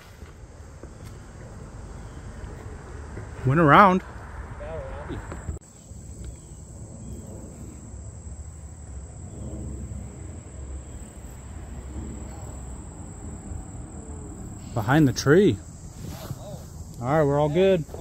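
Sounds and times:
crickets droning: 0.0s - 18.0s
low rumble: 4.0s - 16.0s.

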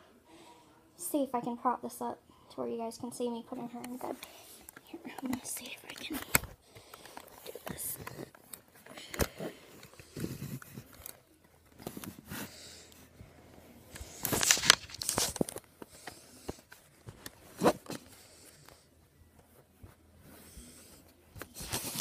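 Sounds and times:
phone rustling against fabric: 3.6s - 22.0s.

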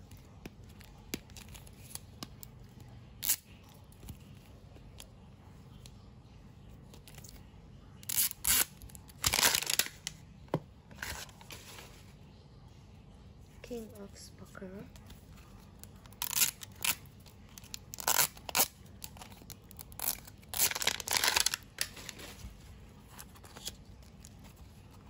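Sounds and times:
packaging tearing: 8.0s - 10.1s, 16.1s - 22.4s
packaging clicks and crinkles: 8.0s - 10.2s, 15.8s - 22.6s.

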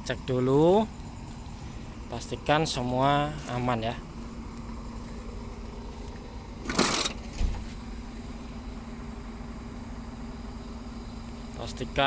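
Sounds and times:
engine idling: 0.0s - 12.0s
short metallic clatter: 6.7s - 7.7s
dull thump: 7.2s - 7.8s.

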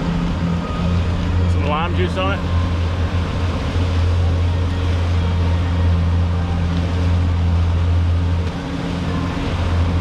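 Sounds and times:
outboard motors droning: 0.0s - 10.0s
wind and water rushing past hull: 0.0s - 10.0s.

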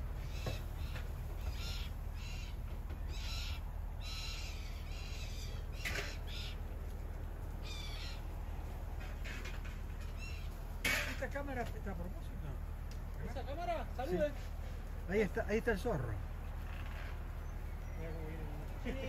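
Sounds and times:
bird calling: 0.0s - 11.1s, 16.3s - 19.0s.

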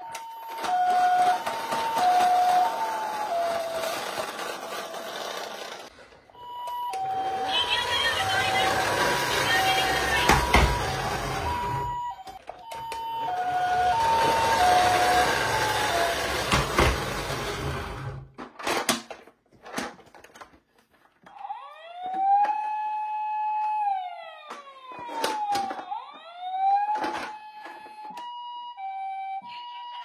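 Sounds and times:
wailing toy siren: 0.0s - 17.6s, 21.3s - 30.0s
two-tone toy siren: 0.0s - 17.7s, 21.3s - 30.0s
rough rolling noise: 1.6s - 6.0s.

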